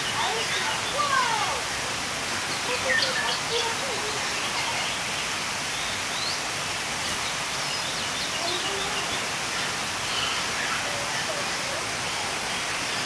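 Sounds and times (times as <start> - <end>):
birds chirping and whistling: 2.5 - 11.3.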